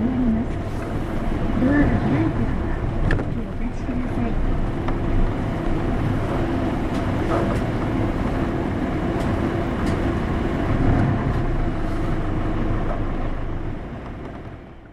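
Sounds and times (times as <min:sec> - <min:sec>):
bus diesel engine running: 0:00.0 - 0:14.9
road noise: 0:00.0 - 0:14.9.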